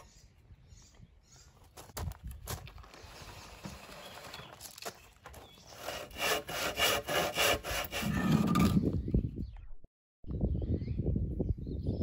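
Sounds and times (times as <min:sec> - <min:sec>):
hand saw cutting wood: 0:05.7 - 0:08.8.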